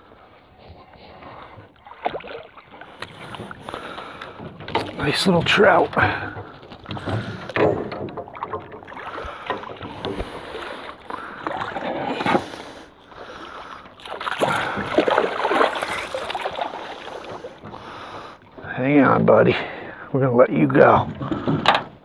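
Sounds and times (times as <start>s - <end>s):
fish splashing at water surface: 1.7s - 5.0s, 5.8s - 18.4s
knocks in boat: 3.1s - 10.6s, 20.8s - 22.0s.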